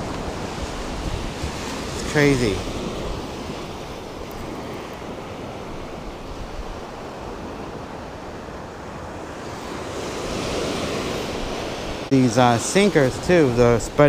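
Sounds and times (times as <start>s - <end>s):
wind on microphone: 0.0s - 12.1s
ocean waves washing onto beach: 0.0s - 14.0s.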